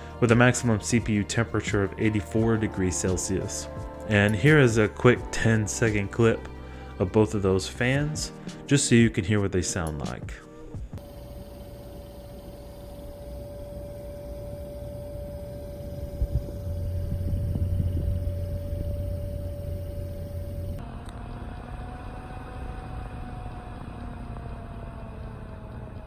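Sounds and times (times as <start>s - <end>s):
computer fan whining: 9.8s - 26.0s
low hum: 10.8s - 26.0s.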